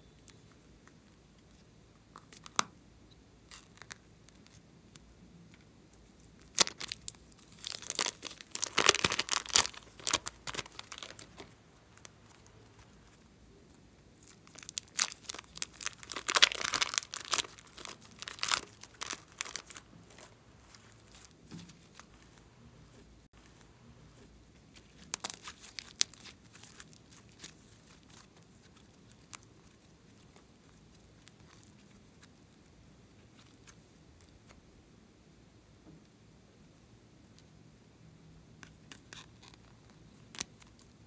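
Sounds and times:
plastic bags crinkling: 0:06.4 - 0:13.2, 0:14.2 - 0:22.2, 0:24.7 - 0:29.8.

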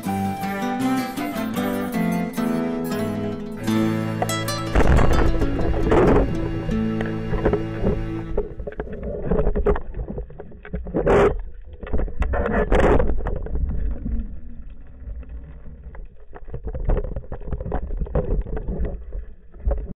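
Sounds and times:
underwater rushes: 0:03.2 - 0:19.9
water rumbling against camera housing: 0:04.2 - 0:19.9.

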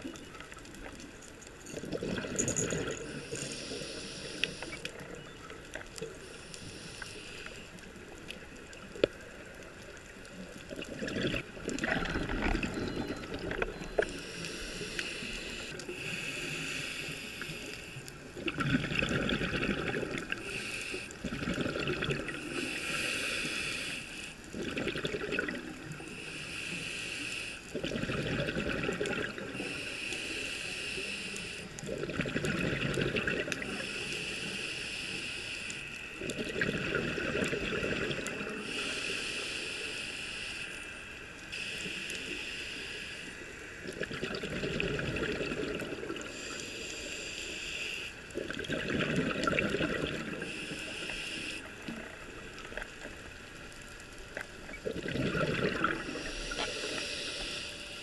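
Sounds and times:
exhaled bubbles rushing: 0:01.8 - 0:03.1, 0:10.6 - 0:13.9, 0:18.4 - 0:20.4, 0:21.2 - 0:22.4, 0:24.6 - 0:25.8, 0:27.8 - 0:29.5, 0:31.8 - 0:33.7, 0:36.3 - 0:38.4, 0:43.8 - 0:46.3, 0:48.4 - 0:50.5, 0:54.6 - 0:56.5
hissing regulator inhale: 0:02.3 - 0:05.0, 0:06.1 - 0:07.9, 0:13.9 - 0:18.2, 0:20.2 - 0:21.3, 0:22.3 - 0:24.5, 0:26.0 - 0:27.8, 0:29.5 - 0:31.9, 0:33.6 - 0:36.3, 0:38.3 - 0:43.9, 0:45.3 - 0:48.4, 0:50.0 - 0:53.0, 0:55.6 - 0:58.0.

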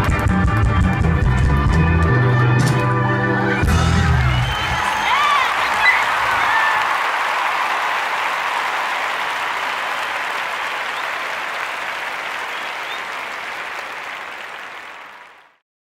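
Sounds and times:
audience applauding: 0:03.3 - 0:15.6.

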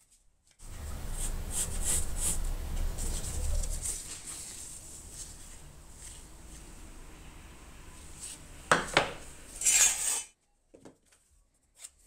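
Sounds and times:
low steady hum: 0:00.6 - 0:09.6
pencil scratching on wood: 0:00.8 - 0:03.9.

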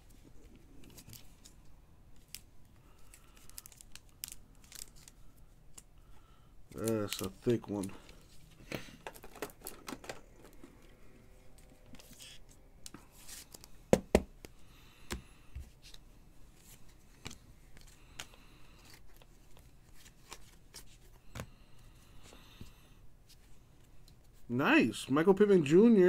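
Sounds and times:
cards sliding and tapping: 0:16.6 - 0:21.6.

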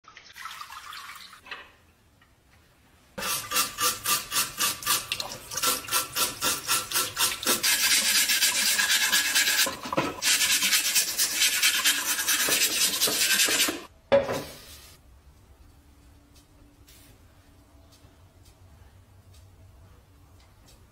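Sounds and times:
brush scrubbing metal burner: 0:03.2 - 0:13.9.

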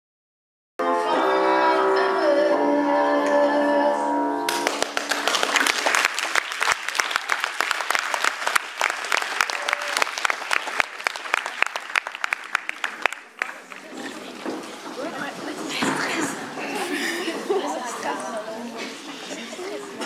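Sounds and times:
audience applauding: 0:04.5 - 0:15.4.

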